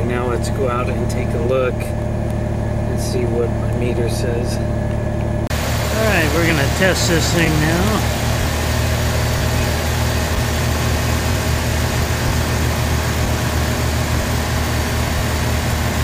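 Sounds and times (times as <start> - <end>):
pickup engine idling: 5.5 - 16.0.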